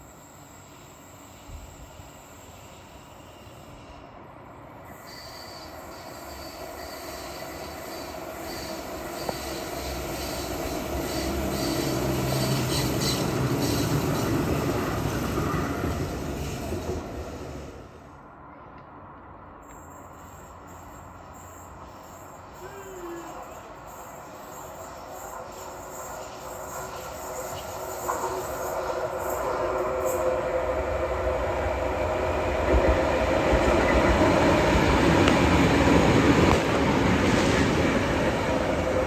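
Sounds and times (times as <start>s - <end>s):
tram rumbling past: 0.0s - 39.0s
high-pitched wheel squeal: 5.0s - 14.0s.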